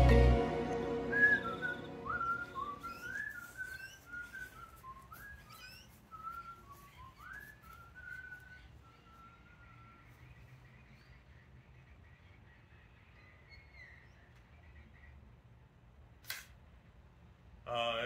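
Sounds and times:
person whistling a tune: 0.0s - 5.5s.

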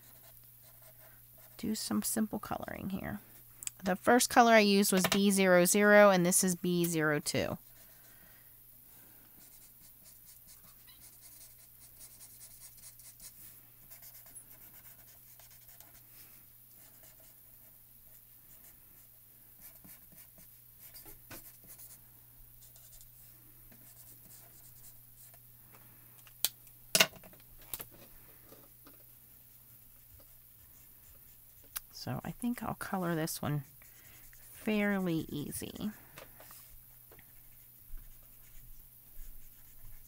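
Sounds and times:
faint low hum: 0.0s - 40.0s
marker scratching on cardstock: 9.4s - 16.0s, 37.3s - 40.0s.

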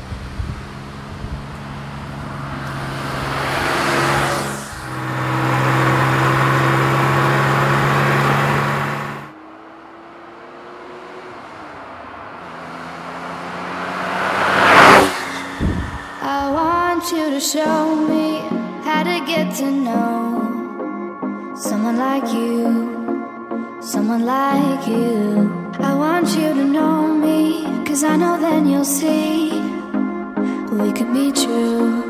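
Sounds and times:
car engine revving hard: 0.0s - 18.3s
car passing by: 0.0s - 18.9s.

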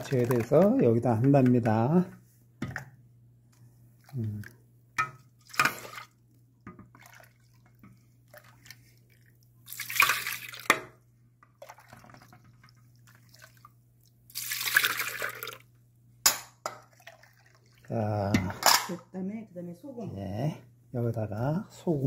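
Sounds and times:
water pouring and splashing: 0.0s - 1.0s, 5.4s - 6.2s, 6.8s - 10.8s, 11.5s - 15.7s, 16.8s - 18.0s
water drips: 4.0s - 15.7s.

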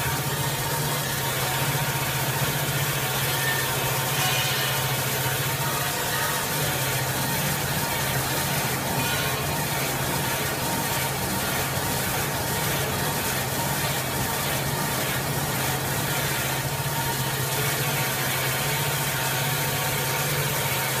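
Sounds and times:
high machine whine: 0.0s - 21.0s
saw hiss and clatter: 0.0s - 21.0s.

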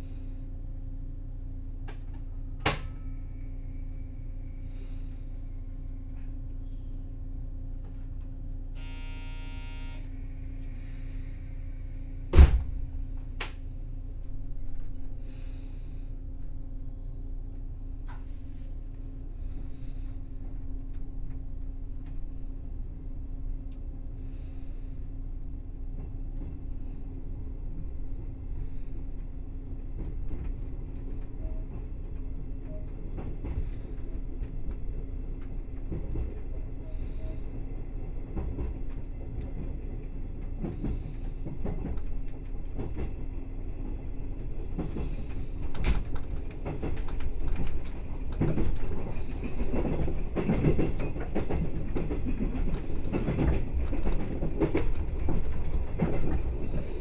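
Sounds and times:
train electrical hum: 0.0s - 57.0s
short buzzer: 8.8s - 10.3s
train moving off: 8.8s - 15.9s
heavy thump: 12.3s - 12.8s
click: 23.7s - 23.9s, 38.9s - 39.6s.

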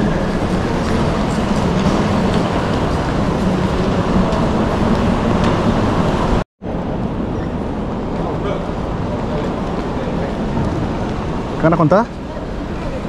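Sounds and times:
train rumbling: 0.0s - 13.0s.

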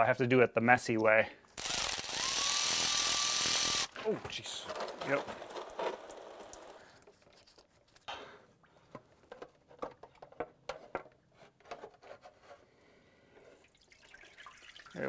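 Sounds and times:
fluid dripping and pattering: 5.6s - 7.6s, 13.6s - 15.0s.

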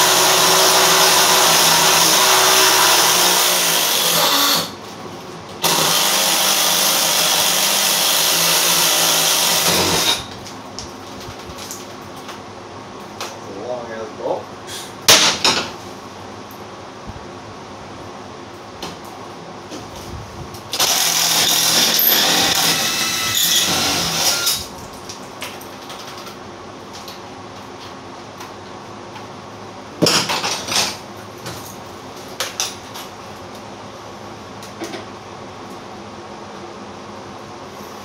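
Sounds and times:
cordless drill running: 0.0s - 4.8s, 5.6s - 10.3s, 20.7s - 24.7s.

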